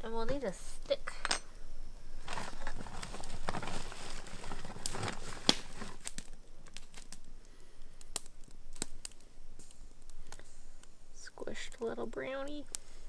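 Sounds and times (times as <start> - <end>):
plastic bag crinkling: 2.2 - 7.2.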